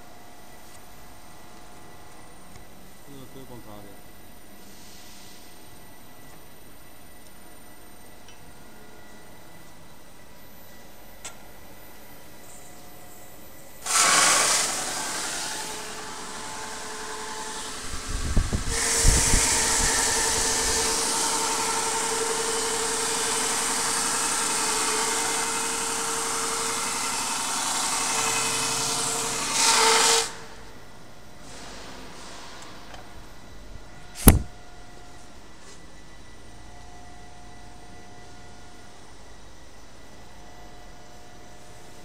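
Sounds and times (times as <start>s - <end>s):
brushing machine hiss and hum: 13.9s - 30.5s.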